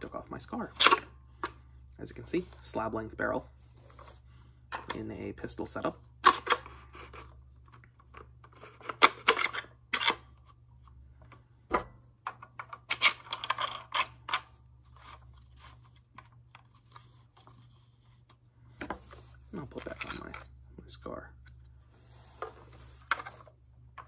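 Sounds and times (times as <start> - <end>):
plastic tube sliding and scraping: 21.8 - 23.6.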